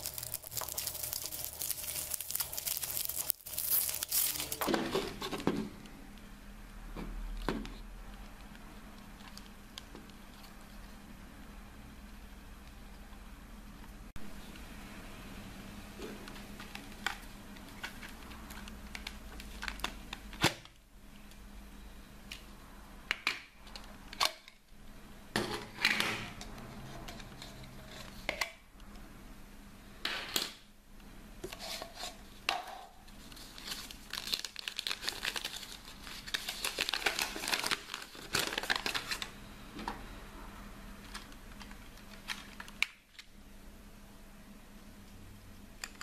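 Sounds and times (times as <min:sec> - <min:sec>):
plastic crinkling and tearing: 0:00.0 - 0:05.2, 0:33.2 - 0:39.3.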